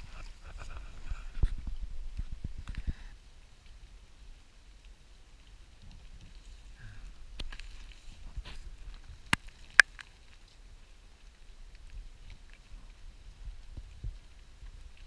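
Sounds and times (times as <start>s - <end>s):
rustling through undergrowth: 0.0s - 2.9s, 4.9s - 15.0s
twigs snapping: 7.3s - 10.6s.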